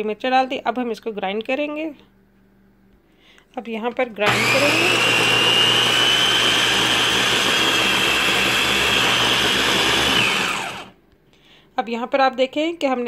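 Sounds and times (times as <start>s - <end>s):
electric food chopper whining: 4.2s - 11.0s.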